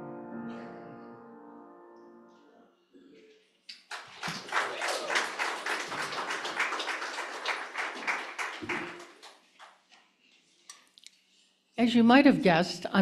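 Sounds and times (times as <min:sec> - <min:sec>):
audience applauding: 0:03.7 - 0:09.8.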